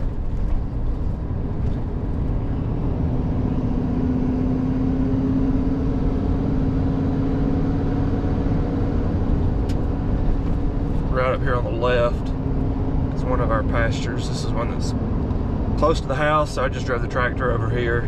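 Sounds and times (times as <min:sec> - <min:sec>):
truck engine and road rumble: 0:00.0 - 0:18.0
rising hum: 0:00.8 - 0:13.8.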